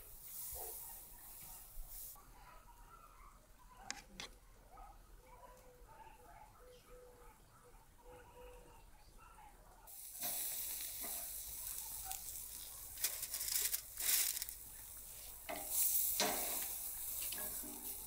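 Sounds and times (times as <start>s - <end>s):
steaks sizzling on a grill: 0.0s - 2.2s, 9.9s - 18.0s
meat crackling bursts: 9.9s - 18.0s.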